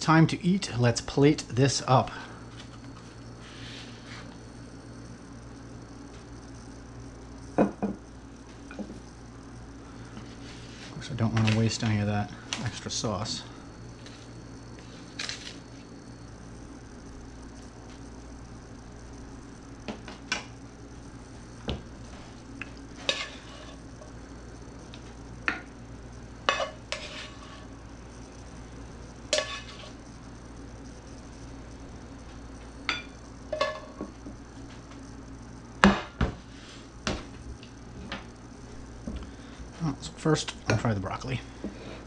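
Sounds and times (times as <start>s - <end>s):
low steady hum: 0.0s - 42.0s
utensils scraping on pans: 22.9s - 23.9s, 26.5s - 27.7s, 29.3s - 30.0s, 32.9s - 34.1s.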